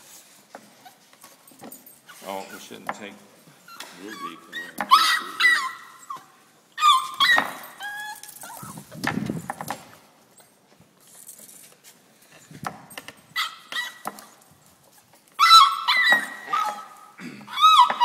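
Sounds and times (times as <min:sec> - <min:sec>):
puppies whimpering and yipping: 0:03.6 - 0:09.1, 0:13.3 - 0:18.0.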